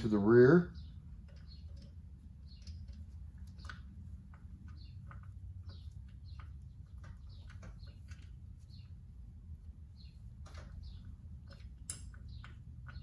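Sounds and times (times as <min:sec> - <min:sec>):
steady low hum: 0:00.0 - 0:13.0
small metal parts clicking: 0:10.3 - 0:13.0.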